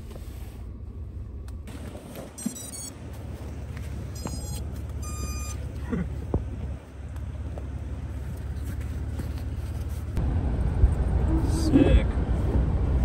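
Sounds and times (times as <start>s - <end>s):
vehicle rumble: 0.0s - 13.0s
short electronic beep: 2.4s - 2.9s, 4.2s - 5.6s.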